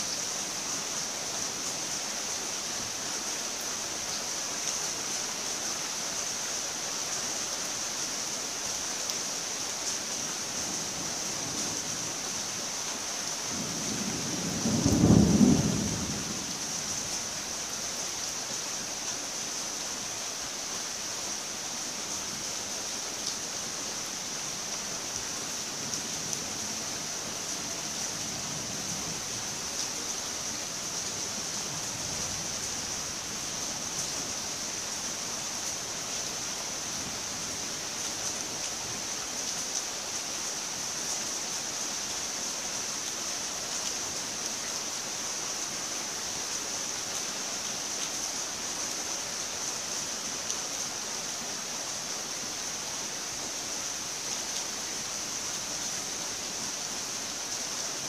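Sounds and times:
rain hiss: 0.0 - 58.0
low rumble of thunder: 13.5 - 16.6.

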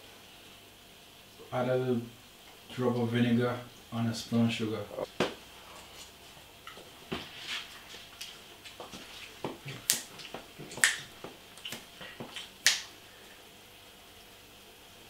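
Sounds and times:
short sharp clicks and snaps: 9.8 - 12.9.

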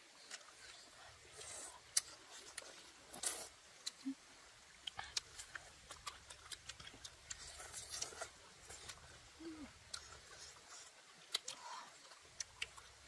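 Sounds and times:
tongue clicks: 3.3 - 4.2
lip smacks: 9.9 - 11.8.

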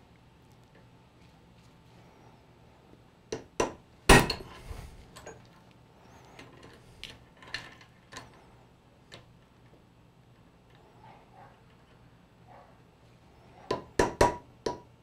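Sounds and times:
hammer striking steel punch: 3.4 - 4.5.

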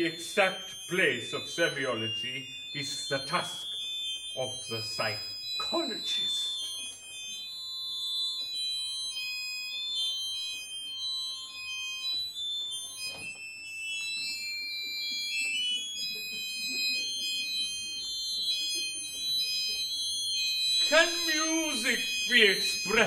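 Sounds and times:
high electronic tones: 20.7 - 23.0.

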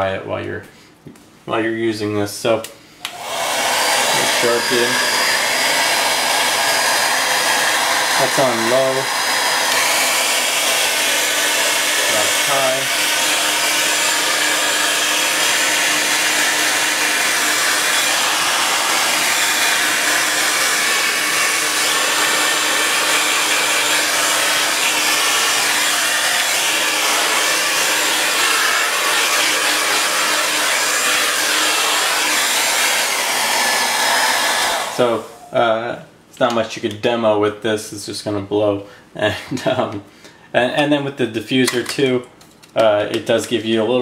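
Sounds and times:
hair dryer running: 3.0 - 35.6.

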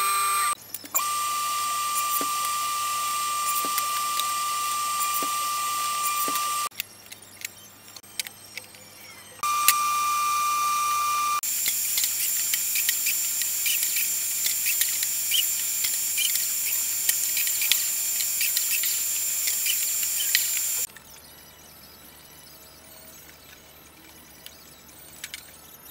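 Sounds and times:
biscuit joiner motor whining: 0.0 - 6.8, 9.4 - 20.9.

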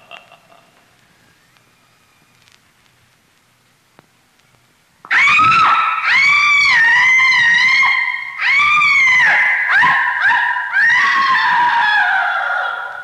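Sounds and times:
dog howling: 5.1 - 13.0.

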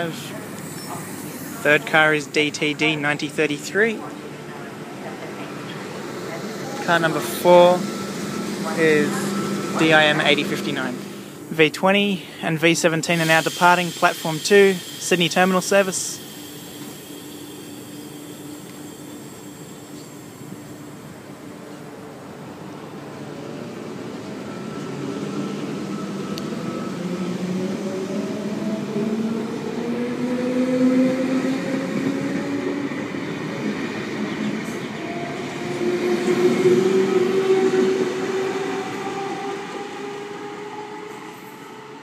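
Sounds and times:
train motors whining: 4.9 - 11.6.

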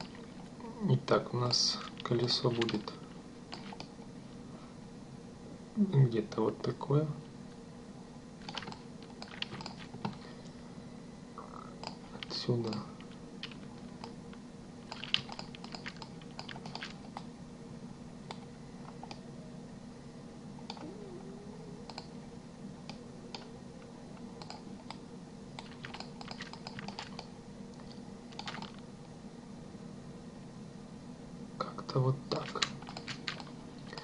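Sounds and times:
low electrical hum: 0.0 - 34.0
keyboard and mouse clicking: 2.0 - 2.9, 3.5 - 3.9, 8.4 - 10.2, 11.8 - 14.2, 14.8 - 17.3, 20.6 - 20.9, 21.9 - 22.1, 24.4 - 25.0, 25.6 - 28.8, 32.3 - 34.0.

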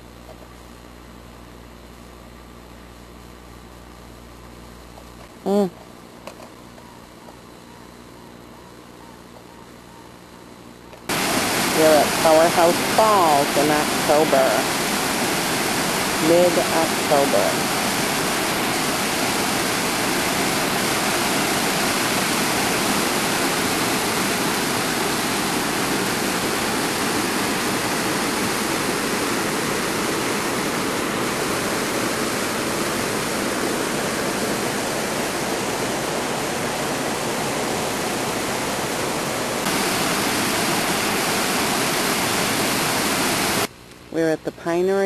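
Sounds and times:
waterfall and rapids rushing: 11.1 - 43.7.

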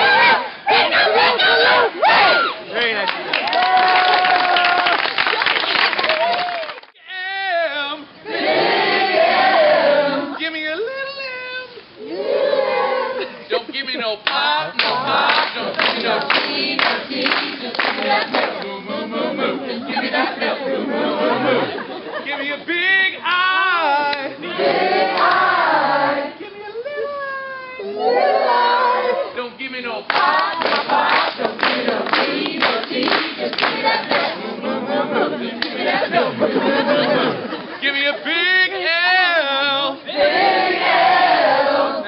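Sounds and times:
group of people singing: 0.0 - 2.5, 8.2 - 10.4, 14.4 - 26.7, 27.8 - 42.0.

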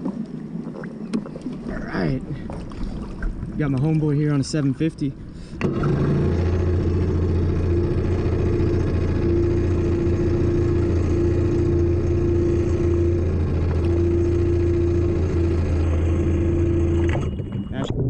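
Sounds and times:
jet ski engine running: 1.2 - 18.0.

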